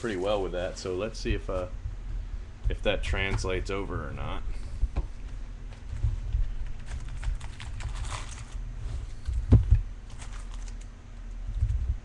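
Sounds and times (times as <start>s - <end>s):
low handling rumble: 0.0s - 12.0s
packaging rustling and crinkling: 5.2s - 11.0s.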